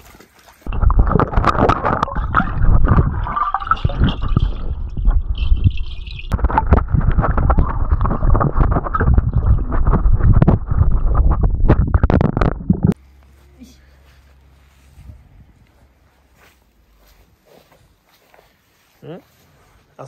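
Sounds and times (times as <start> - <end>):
otters splashing in water: 0.0 - 13.0.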